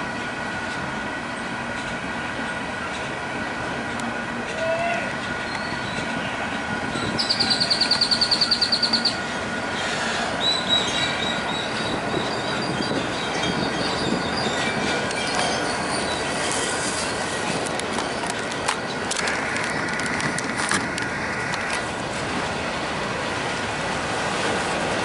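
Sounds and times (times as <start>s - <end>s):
train wheels rumbling and clattering: 0.0s - 25.0s
high wheel squeal: 6.9s - 18.2s
crossing bell ringing: 7.2s - 9.3s, 10.9s - 16.3s.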